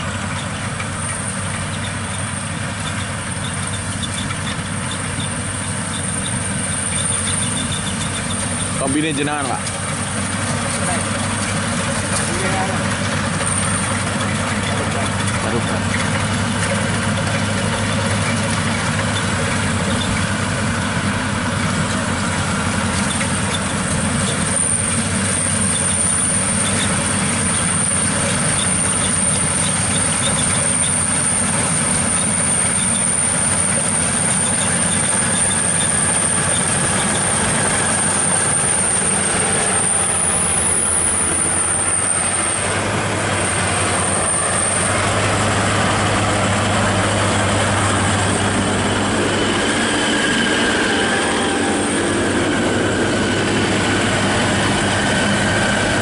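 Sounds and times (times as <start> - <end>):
dense mechanical rattle: 0.0 - 51.2
harvester engine drone: 0.0 - 56.0
thin high whine: 34.2 - 56.0.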